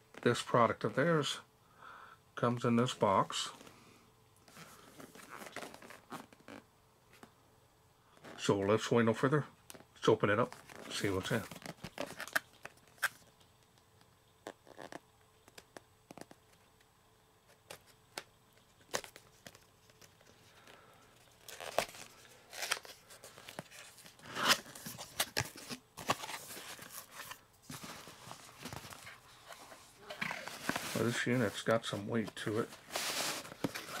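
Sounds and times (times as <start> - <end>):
packaging tearing and rustling: 21.3 - 31.4, 32.4 - 34.0.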